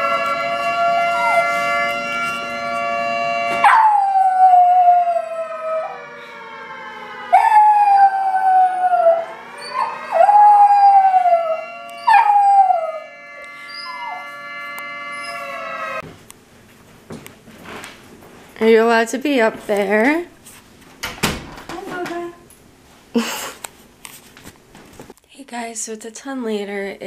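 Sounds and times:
dog howling: 0:00.0 - 0:02.8, 0:03.4 - 0:16.0
steady held tone: 0:00.0 - 0:16.0
dog yipping: 0:12.0 - 0:12.6.

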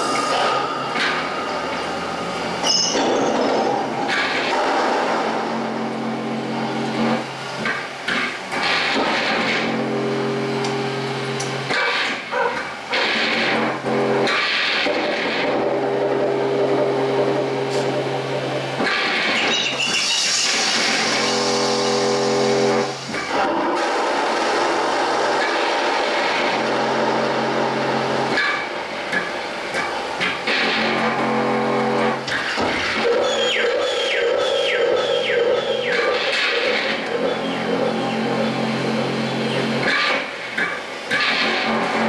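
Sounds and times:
low droning electronic tones: 0:00.0 - 0:07.6, 0:15.5 - 0:18.8, 0:19.4 - 0:23.1, 0:36.8 - 0:39.9
harsh hiss and crackle: 0:18.8 - 0:30.9.

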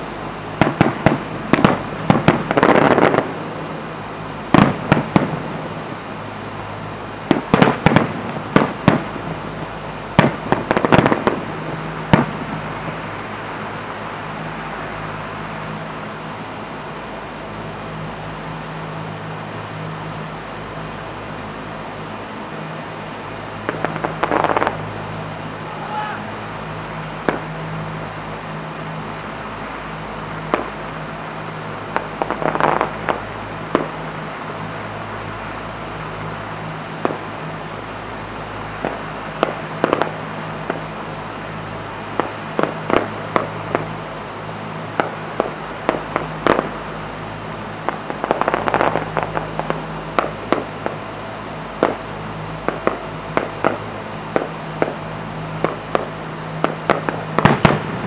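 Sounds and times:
fireworks crackling: 0:00.0 - 0:58.0
steady low hum: 0:00.0 - 0:58.0
fireworks bangs: 0:00.6 - 0:03.8, 0:04.5 - 0:05.9, 0:07.2 - 0:13.8, 0:23.6 - 0:24.8, 0:27.2 - 0:27.5, 0:30.4 - 0:31.0, 0:32.0 - 0:34.0, 0:37.0 - 0:37.3, 0:38.7 - 0:44.1, 0:44.9 - 0:46.9, 0:47.8 - 0:51.0, 0:51.8 - 0:58.0.

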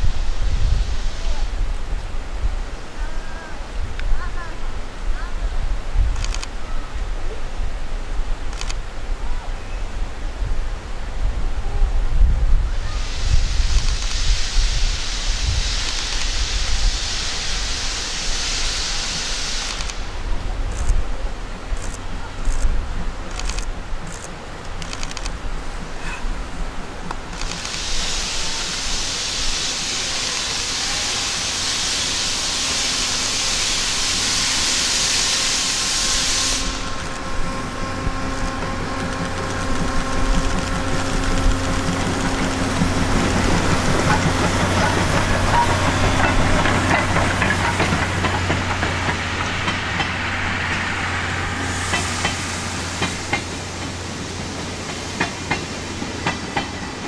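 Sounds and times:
steam hissing from cylinder cocks: 0:12.8 - 0:21.0, 0:27.0 - 0:57.0
steam locomotive exhaust chuffing: 0:12.8 - 0:21.0, 0:27.1 - 0:57.0
coach wheels clicking over rail joints: 0:21.7 - 0:29.0, 0:36.6 - 0:57.0.

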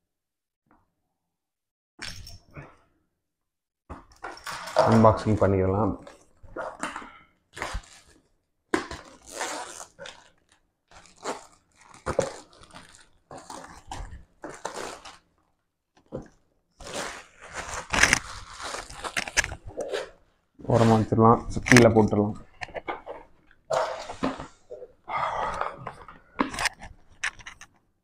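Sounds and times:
plastic shrink wrap tearing: 0:07.5 - 0:08.2, 0:08.8 - 0:15.3, 0:16.8 - 0:19.7.

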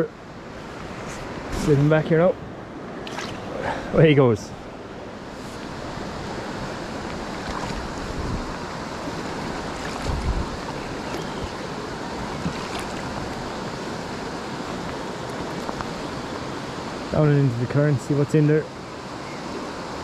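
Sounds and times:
fast-flowing river rushing: 0:00.1 - 0:20.0
wind rumble on microphone: 0:05.3 - 0:16.4.

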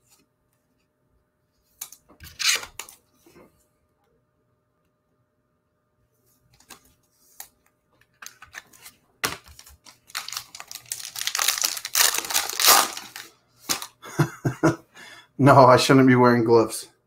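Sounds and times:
foil wrapper crinkling and tearing: 0:09.2 - 0:14.0.

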